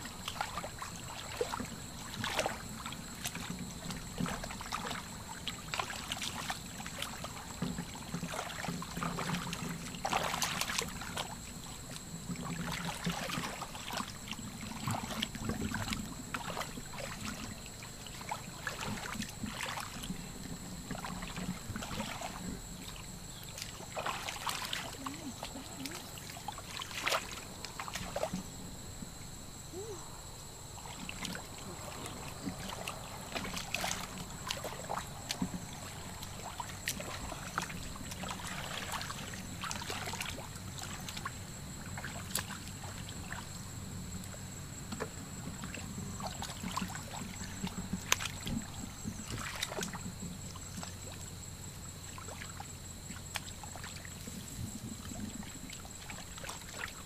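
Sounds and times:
muddy water sloshing: 0:00.0 - 0:57.0
sharp splashes: 0:08.3 - 0:12.0, 0:12.6 - 0:20.1, 0:20.9 - 0:28.5, 0:30.8 - 0:41.3, 0:49.2 - 0:50.0.

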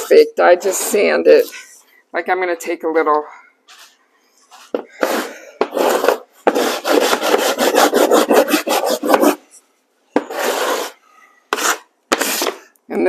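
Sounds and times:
sandpaper rasping on wood: 0:05.8 - 0:09.4, 0:10.3 - 0:12.6.

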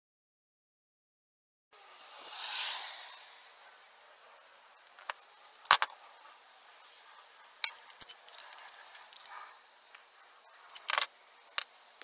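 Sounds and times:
pipe fittings clicking and clinking: 0:04.8 - 0:06.4, 0:07.6 - 0:12.0.

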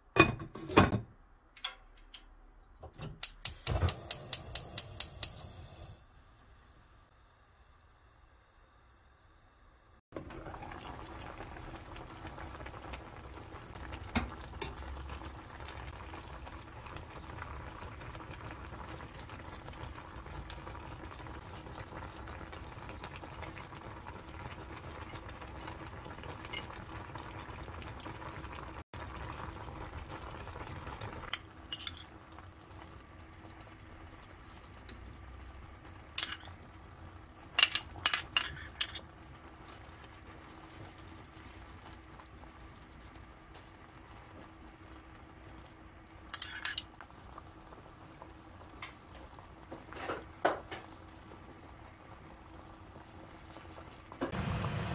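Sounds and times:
stew boiling and bubbling: 0:00.0 - 0:54.9
metal spoon clinking on bowl: 0:36.2 - 0:36.5, 0:46.4 - 0:46.9.

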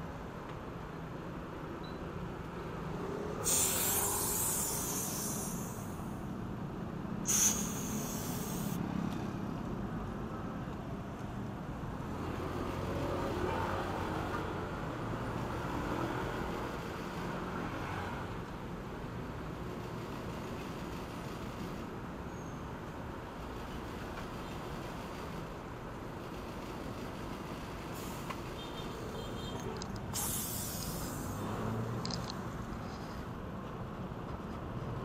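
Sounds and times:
low traffic rumble: 0:00.0 - 0:35.0
compressed air hissing from hose: 0:03.4 - 0:06.1, 0:07.2 - 0:08.8, 0:30.1 - 0:31.5.

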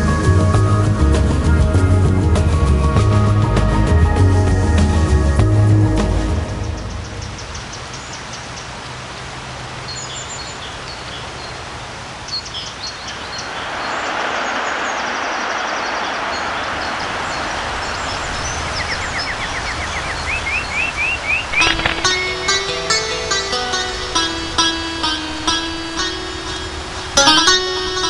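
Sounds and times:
birds chirping: 0:05.9 - 0:28.0
water rushing down a waterfall: 0:07.9 - 0:27.8
bird rising chirps: 0:12.3 - 0:24.0.

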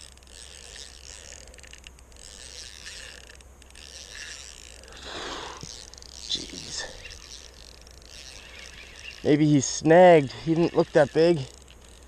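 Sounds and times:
fishing reel whirring: 0:00.0 - 0:12.0
steady hiss: 0:04.2 - 0:07.3.

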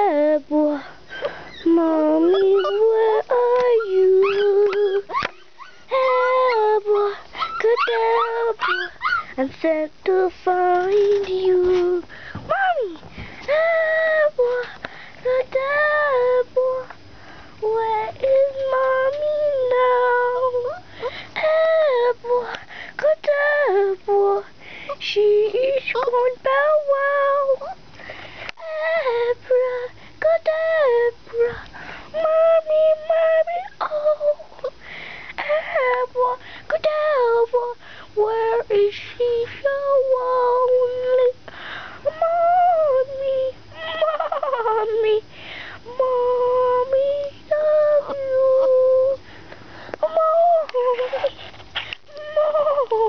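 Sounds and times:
puppies whining: 0:01.1 - 0:09.4.

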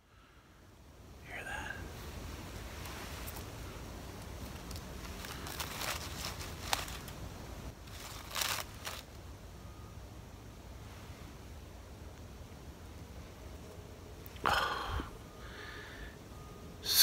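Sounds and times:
faint low background rumble: 0:00.0 - 0:16.8
rustling crackling noises: 0:02.0 - 0:09.4.

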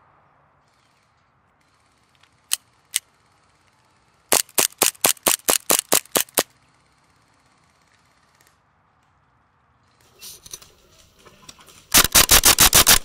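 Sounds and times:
airsoft pistol shots: 0:12.0 - 0:13.0.

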